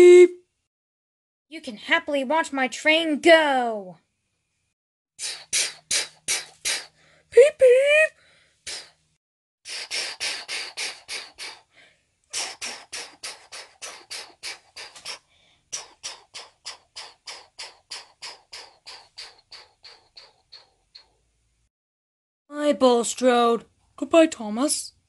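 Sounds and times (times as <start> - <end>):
person imitating train chuffing: 5.2 - 7.0, 8.6 - 9.0, 9.7 - 11.7, 12.3 - 21.2.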